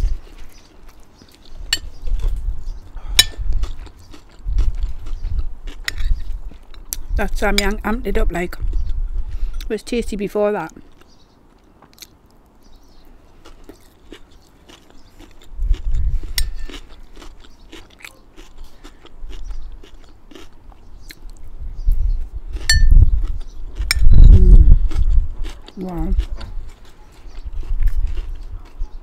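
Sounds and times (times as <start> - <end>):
crunching and chewing: 0.0 - 7.8, 8.5 - 9.7, 10.7 - 29.0
low rumble on microphone: 1.5 - 9.6, 15.5 - 16.7, 21.4 - 29.0.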